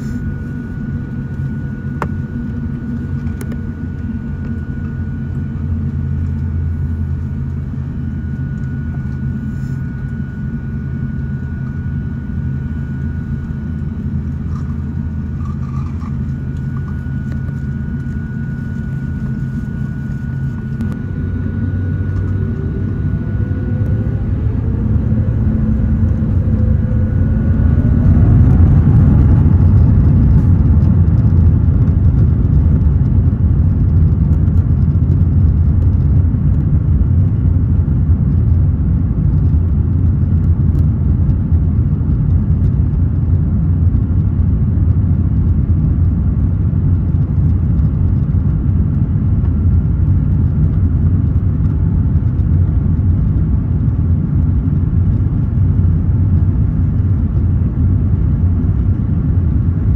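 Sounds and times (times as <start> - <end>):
jet engines spooling up: 0.0 - 32.2.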